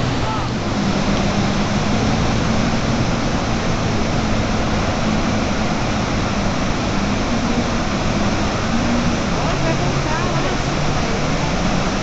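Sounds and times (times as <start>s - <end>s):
loud rush of falling water: 0.0s - 12.0s.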